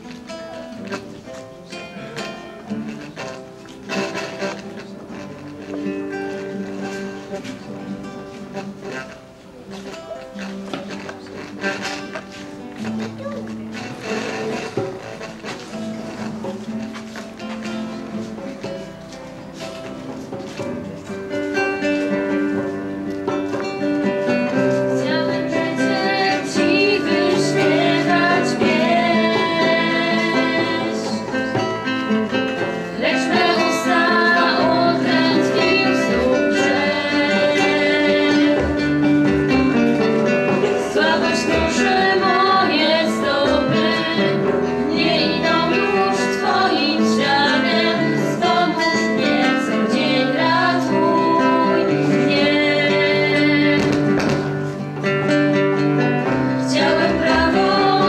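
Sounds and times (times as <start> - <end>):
acoustic guitar strumming: 0.0 - 58.0
hand drum beat: 10.1 - 58.0
woman singing: 24.6 - 31.8, 32.9 - 39.8, 40.6 - 54.5, 56.6 - 58.0.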